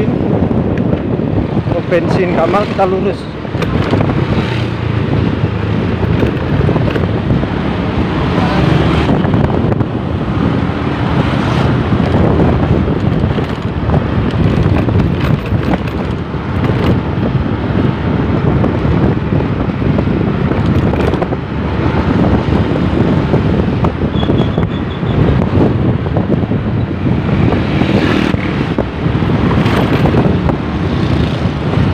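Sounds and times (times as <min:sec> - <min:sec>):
road noise: 0:00.0 - 0:31.9
wind buffeting microphone: 0:00.0 - 0:31.9
motorcycle engine running: 0:02.8 - 0:07.8, 0:11.7 - 0:17.4, 0:26.6 - 0:31.9.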